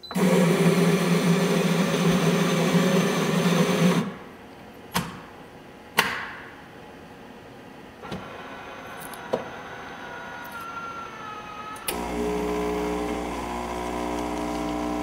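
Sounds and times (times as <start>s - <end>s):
vending machine motor running: 0.1s - 4.1s, 11.9s - 15.0s.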